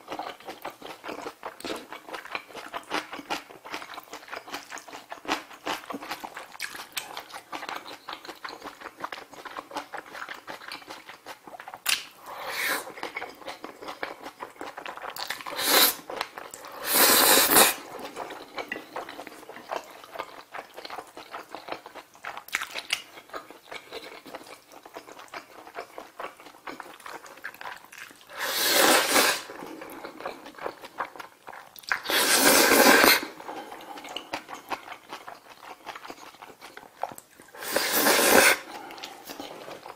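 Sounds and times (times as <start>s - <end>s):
wet chewing and lip smacking: 0.0s - 12.2s, 17.8s - 28.3s, 29.5s - 32.1s, 33.4s - 37.6s
noodle slurping: 12.2s - 13.2s, 15.4s - 19.2s, 28.3s - 30.5s, 31.9s - 34.3s, 37.5s - 39.9s.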